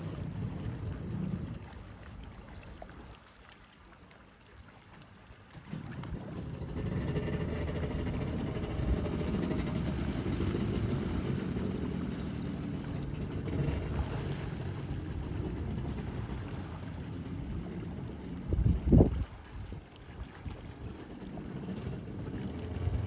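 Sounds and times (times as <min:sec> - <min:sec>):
jet ski engine running: 0:00.0 - 0:02.4, 0:05.5 - 0:23.0
water jet rushing: 0:05.4 - 0:23.0.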